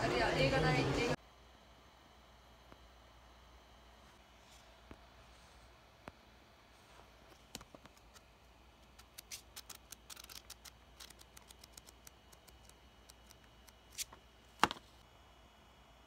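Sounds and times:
booklet pages flipping: 6.8s - 14.9s
loud paper snap: 8.8s - 14.8s.

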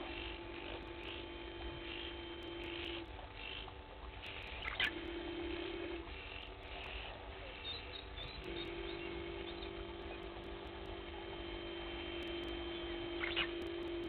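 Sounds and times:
faint bird chirps: 0.0s - 14.0s
steady low hum: 0.0s - 14.0s.

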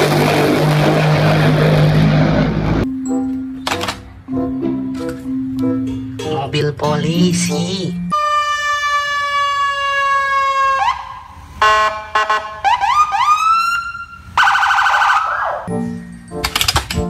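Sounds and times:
loud burst of noise: 0.0s - 2.8s
police siren: 8.0s - 15.7s.

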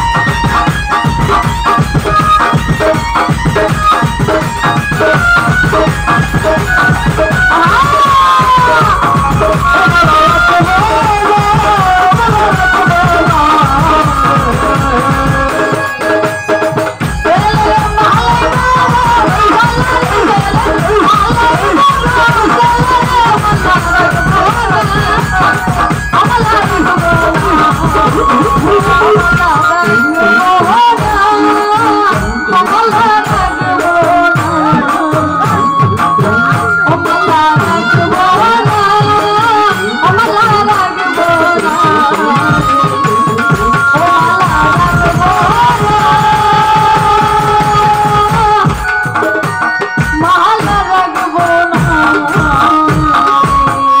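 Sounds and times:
woman singing through pa: 0.0s - 16.3s, 17.1s - 49.2s, 50.0s - 54.0s
hand drum beat: 0.0s - 54.0s
small percussion: 0.0s - 54.0s.

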